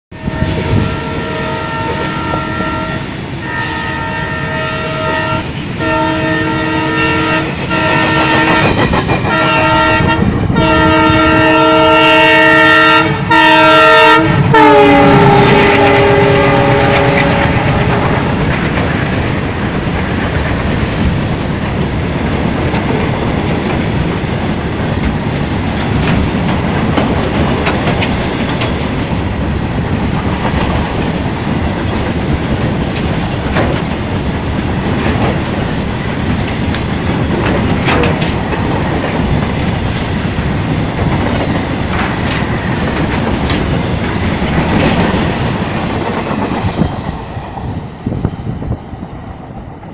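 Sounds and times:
wheels clacking over rail joints: 14.4s - 47.6s
freight wagons rumbling and rattling: 16.9s - 46.8s.

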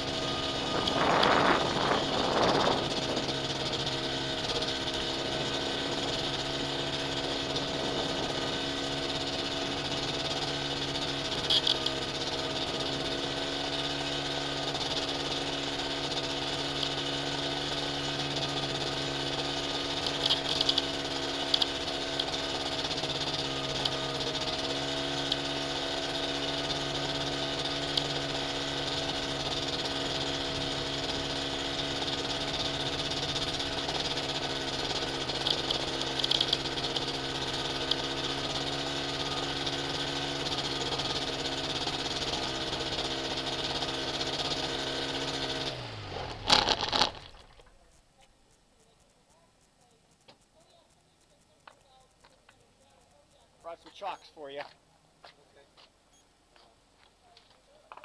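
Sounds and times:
aircraft piston engine idling: 0.0s - 45.7s.

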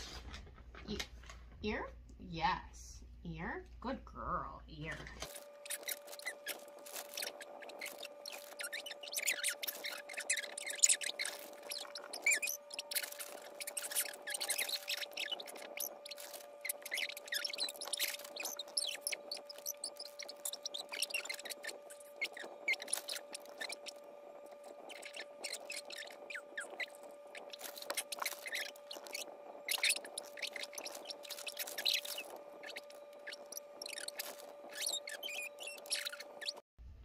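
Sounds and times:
faint hum: 0.0s - 37.0s.

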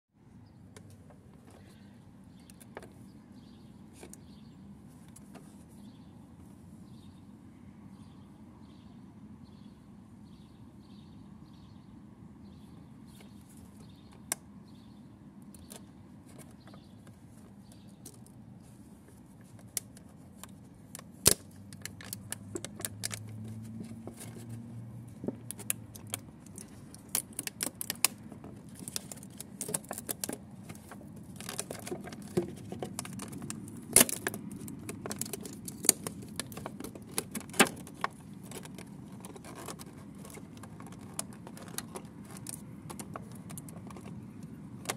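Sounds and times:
plastic packaging crinkling: 25.5s - 44.1s.

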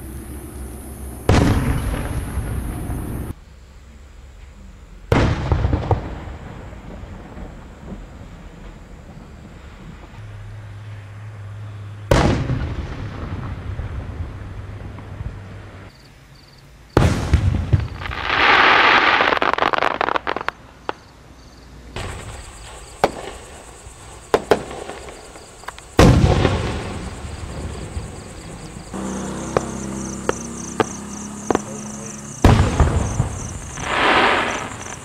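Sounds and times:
fireworks booming: 1.0s - 3.3s, 5.1s - 10.2s, 12.1s - 15.9s, 17.0s - 21.1s, 22.0s - 35.0s
fireworks crackling and popping: 17.0s - 21.1s, 22.0s - 35.0s.

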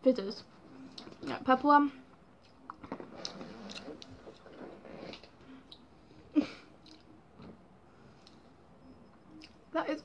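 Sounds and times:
person chewing candy: 2.4s - 5.9s, 6.8s - 7.2s.

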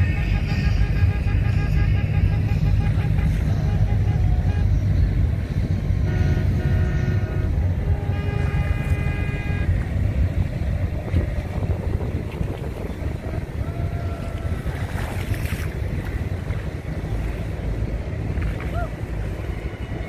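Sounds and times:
boat horn blasts: 0.0s - 12.0s
wind buffeting microphone: 0.0s - 20.0s.

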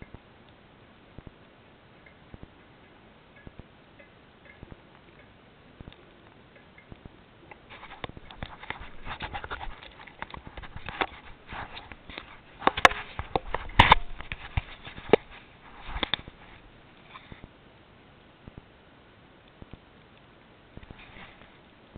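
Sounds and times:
camera mount knocks and rattles: 12.1s - 16.3s.

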